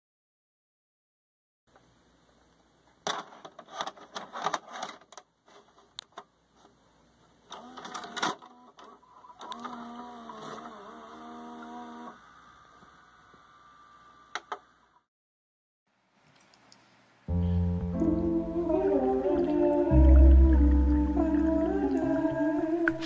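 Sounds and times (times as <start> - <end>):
loading motor whirring: 9.4 - 12.2.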